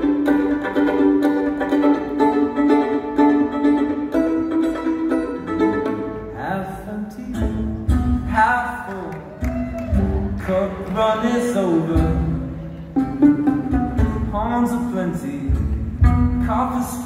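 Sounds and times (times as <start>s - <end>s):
guitar and mandolin chords: 0.0s - 17.0s
low bass notes: 11.4s - 17.0s.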